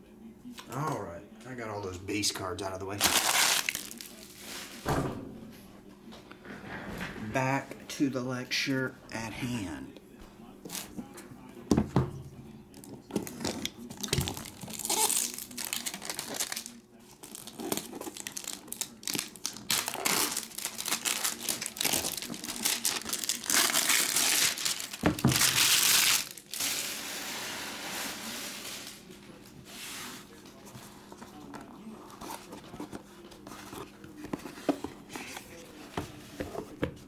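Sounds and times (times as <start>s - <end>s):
plastic wrap crinkling and tearing: 2.9s - 4.6s, 13.1s - 27.0s.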